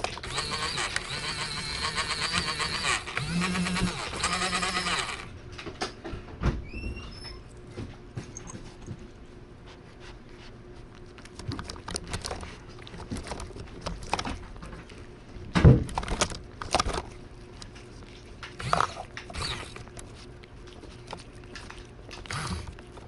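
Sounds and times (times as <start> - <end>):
cat licking: 17.1 - 23.0.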